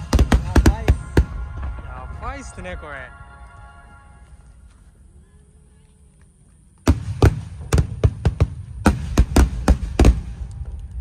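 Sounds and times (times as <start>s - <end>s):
fireworks booming: 0.0s - 2.5s, 6.8s - 11.0s.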